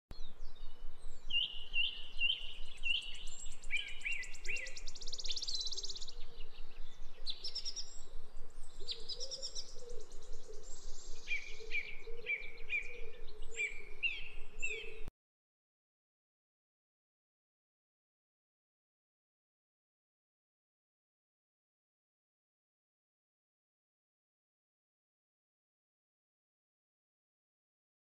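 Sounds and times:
songbirds singing: 0:00.1 - 0:15.1
faint forest hiss: 0:00.2 - 0:15.1.

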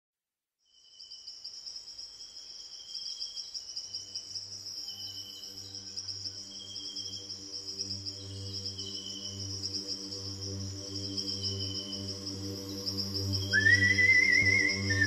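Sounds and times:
insect trill: 0:00.6 - 0:15.0
low sustained drone: 0:08.2 - 0:15.0.

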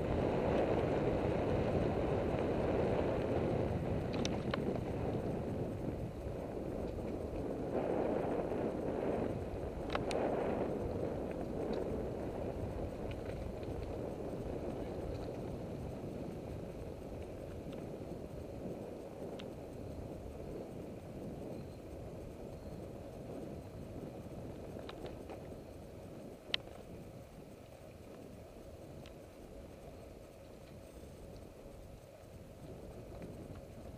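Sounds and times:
bicycle tyres rolling over leaves: 0:00.0 - 0:33.9
bike rattling: 0:00.0 - 0:33.9
small clicks: 0:04.0 - 0:05.2, 0:09.8 - 0:10.5, 0:24.6 - 0:33.9.

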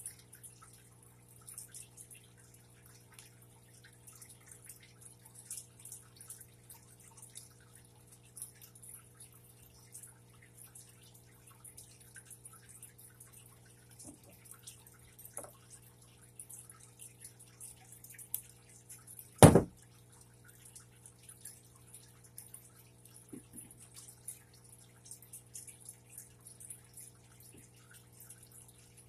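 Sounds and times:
knock on work surface: 0:19.4 - 0:19.8.

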